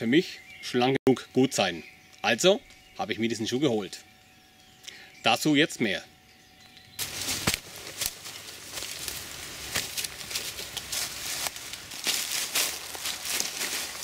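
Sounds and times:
boots stepping through dry leaves: 7.0s - 14.0s
twigs snapping: 7.0s - 14.0s.

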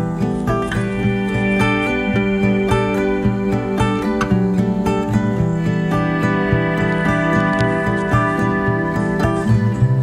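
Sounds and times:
acoustic guitar music: 0.0s - 10.0s
repeating bass line: 0.8s - 10.0s.

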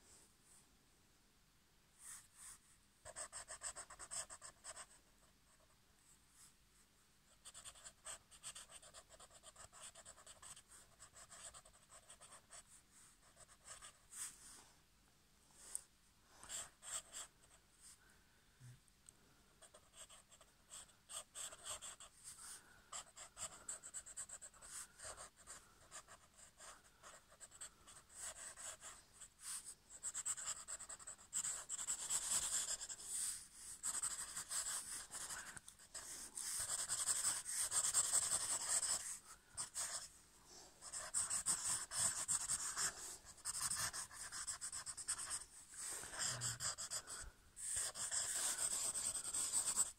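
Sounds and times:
pen scratching on paper: 3.0s - 5.0s, 7.4s - 14.4s, 16.4s - 17.3s, 19.6s - 40.1s, 40.8s - 49.9s.

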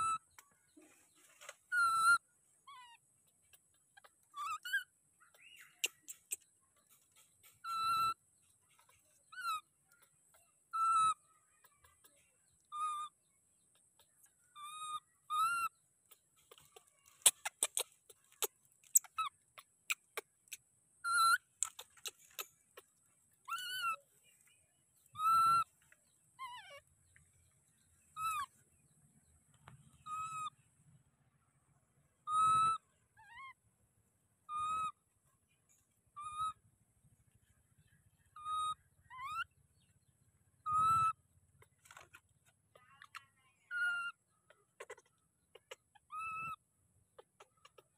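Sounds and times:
baby monkey coo calls: 0.0s - 0.4s, 1.6s - 24.1s, 25.1s - 27.2s, 28.1s - 28.6s, 29.9s - 30.6s, 32.2s - 33.7s, 34.4s - 35.1s, 36.1s - 36.6s, 38.2s - 39.6s, 40.6s - 47.9s.

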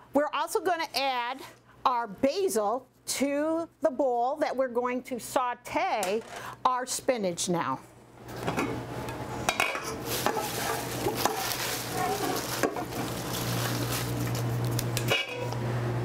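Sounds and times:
spinach sizzling in a skillet: 9.9s - 15.6s.

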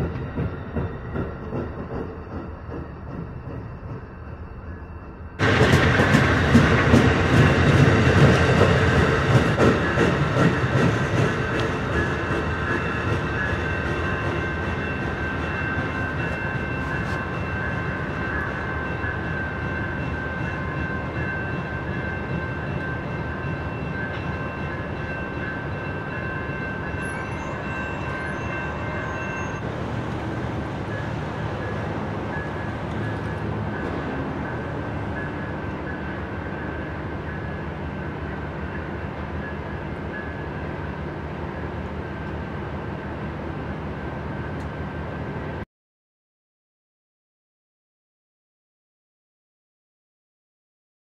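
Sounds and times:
train wheels clacking over joints: 0.0s - 4.2s, 5.4s - 17.2s
crossing bell ringing: 0.0s - 45.5s
train rumble: 0.0s - 45.6s.

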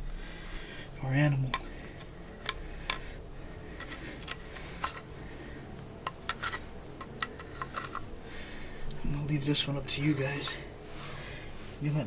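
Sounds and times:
metal tool clicking on dry bones: 6.0s - 8.1s.

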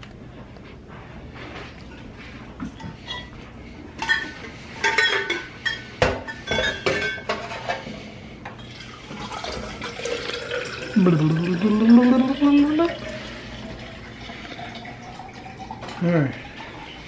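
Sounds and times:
dishes and glassware clinking: 2.6s - 7.9s.

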